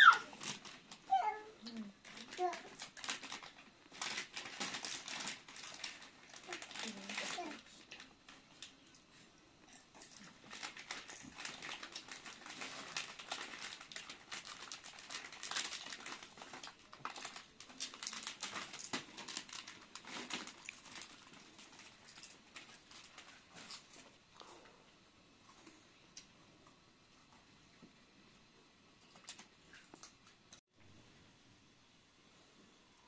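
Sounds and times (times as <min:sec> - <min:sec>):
plastic wrappers crinkling: 0:00.0 - 0:24.3, 0:29.1 - 0:30.2.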